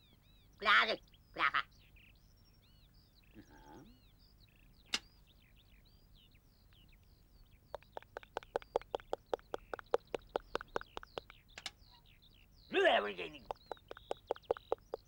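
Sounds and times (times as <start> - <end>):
small birds chirping: 0.0 - 15.0
sharp click: 4.9 - 5.1, 7.8 - 11.8
rhythmic taps: 7.7 - 11.7, 13.4 - 15.0.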